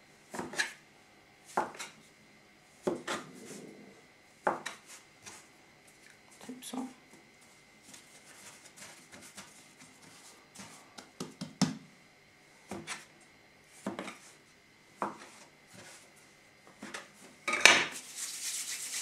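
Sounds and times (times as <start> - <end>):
dough scraper chopping dough: 0.3 - 0.8, 1.5 - 2.0, 2.8 - 3.3, 7.9 - 11.8, 15.0 - 16.0
rustling scrape: 7.8 - 10.9, 17.9 - 19.0.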